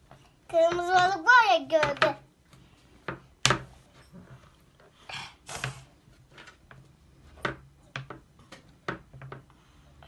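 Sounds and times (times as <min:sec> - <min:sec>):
plastic moulds tapping on table: 0:00.6 - 0:02.3, 0:03.0 - 0:03.8, 0:06.3 - 0:09.5.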